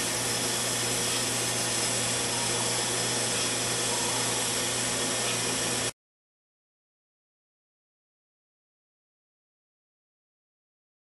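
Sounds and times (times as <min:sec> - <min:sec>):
electric motor hum: 0:00.0 - 0:05.9
grinder belt hissing: 0:00.0 - 0:05.9.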